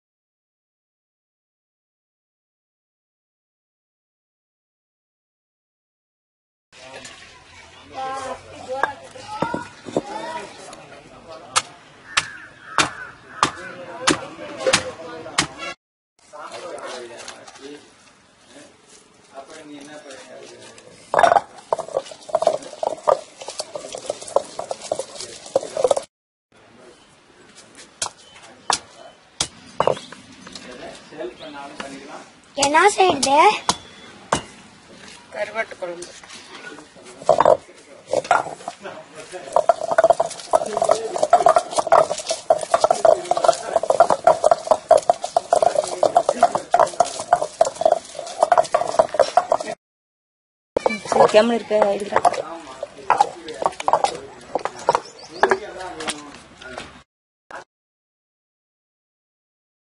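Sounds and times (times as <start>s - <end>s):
pestle pounding in stone mortar: 11.6s - 14.8s, 21.1s - 26.1s, 28.0s - 30.1s, 37.3s - 38.8s, 39.4s - 49.8s, 50.8s - 55.7s
garlic cloves crunching: 21.1s - 26.1s, 37.3s - 49.8s.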